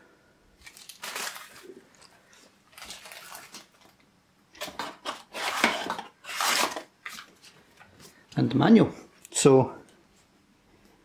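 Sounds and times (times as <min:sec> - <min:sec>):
paper and cardboard rustling: 0:00.6 - 0:04.0, 0:04.6 - 0:07.6.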